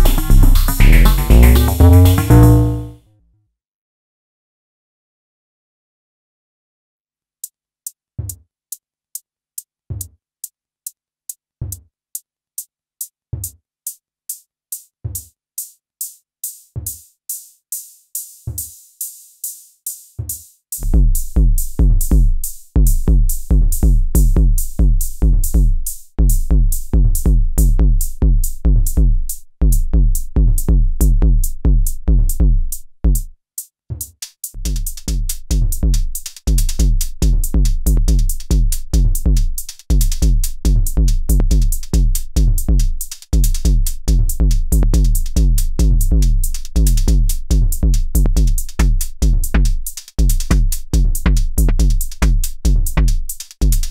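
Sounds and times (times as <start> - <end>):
high metallic drum machine ticks: 0.0 - 2.9, 34.4 - 53.9
deep bass notes: 0.0 - 3.0.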